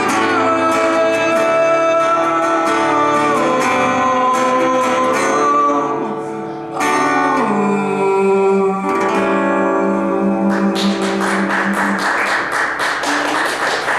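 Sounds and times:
guitar chords: 0.0s - 13.9s
audience clapping: 10.5s - 13.9s.

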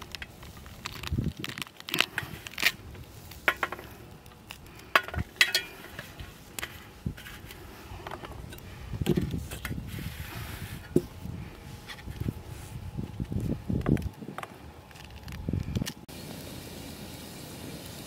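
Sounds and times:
utensils and dishes clinking: 5.0s - 6.1s.

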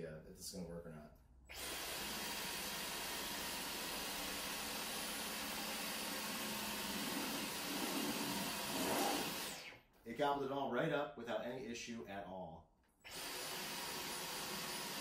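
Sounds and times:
cordless vacuum running: 1.5s - 9.7s, 13.1s - 15.0s.

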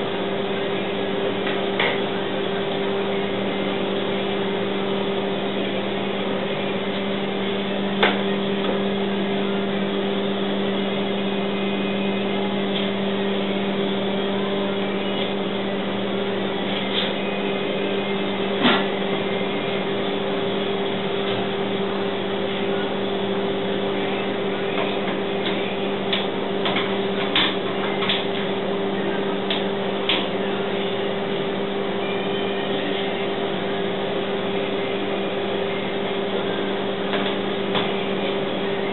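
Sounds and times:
steady machine hum: 0.0s - 38.9s.

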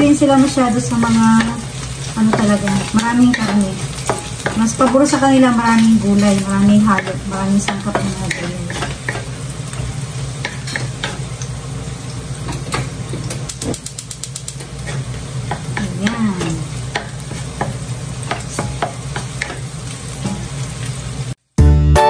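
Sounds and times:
food sizzling in frying pan: 0.0s - 21.5s
wooden spatula scraping pan: 0.2s - 11.3s.

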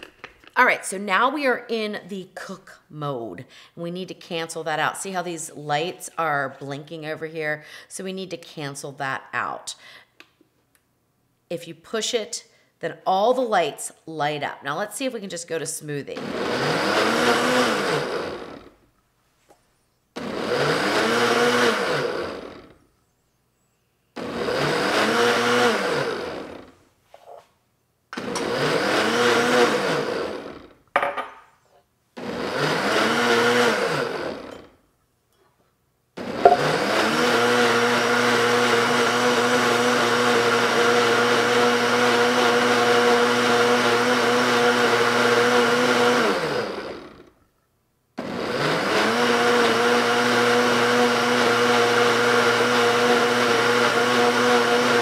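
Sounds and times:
blender motor running: 16.2s - 18.7s, 20.2s - 22.8s, 24.2s - 26.7s, 28.2s - 30.8s, 32.2s - 34.7s, 36.2s - 47.3s, 48.2s - 55.0s.

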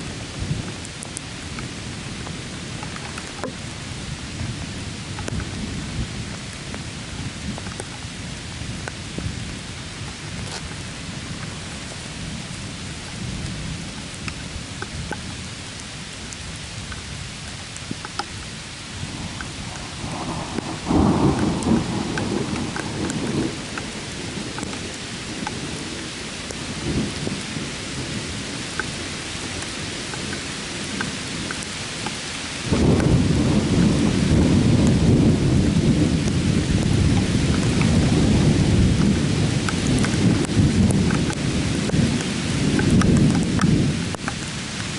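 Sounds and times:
rain hissing: 0.0s - 44.9s
raindrop ticks: 0.3s - 3.7s, 5.1s - 5.6s, 6.3s - 8.0s, 8.8s - 9.4s, 10.1s - 18.5s, 19.3s - 27.5s, 28.2s - 44.9s
thunder rumbling: 19.0s - 32.0s, 32.6s - 44.9s.

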